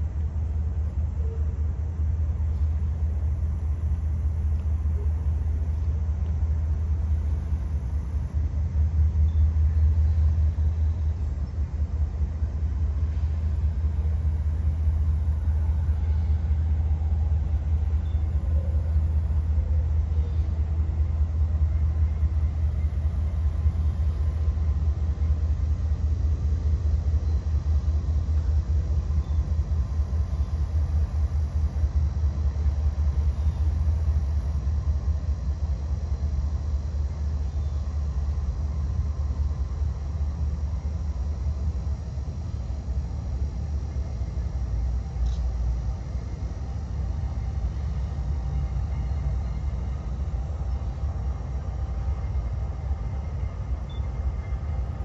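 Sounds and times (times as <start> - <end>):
distant train rumbling: 0.0 - 55.0.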